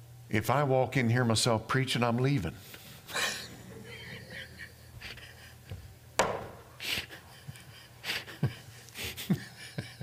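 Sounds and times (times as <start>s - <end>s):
man laughing breathily: 3.1s - 6.0s, 6.7s - 10.0s
sharp knock: 6.2s - 6.6s.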